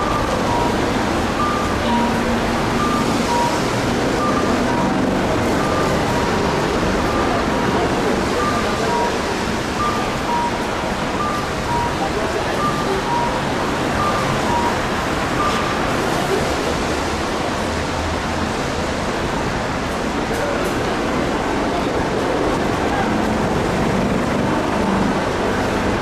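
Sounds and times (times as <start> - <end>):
pedestrian crossing signal: 0.0 - 17.9
crowd street noise: 0.0 - 26.0.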